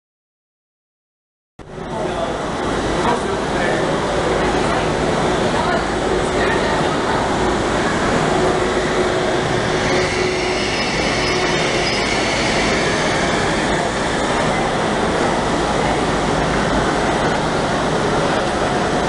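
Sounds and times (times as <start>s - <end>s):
high-speed train rumble and hiss: 1.6s - 19.0s.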